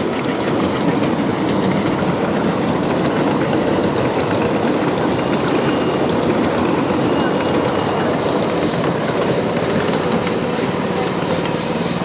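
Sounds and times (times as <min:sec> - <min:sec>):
train wheels rumbling and clicking: 0:00.0 - 0:12.0.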